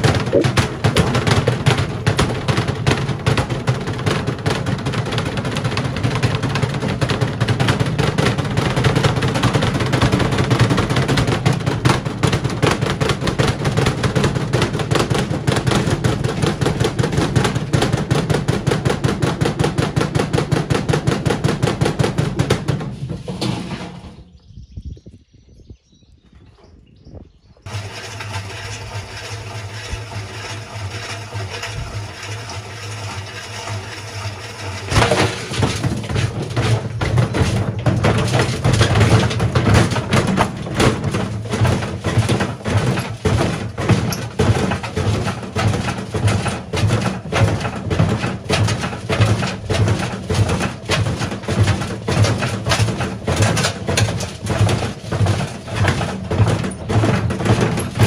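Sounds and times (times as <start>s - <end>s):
washing machine motor hum: 27.7s - 58.0s
stone banging against drum: 34.9s - 58.0s.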